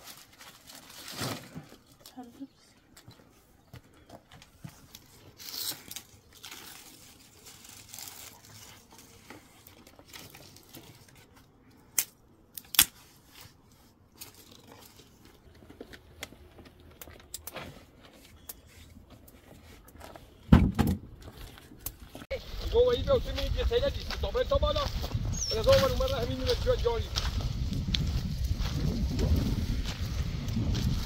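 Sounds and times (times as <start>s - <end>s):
sticks and twigs rustling: 0.0s - 20.4s, 21.2s - 31.0s
sticks cracking: 11.9s - 13.0s.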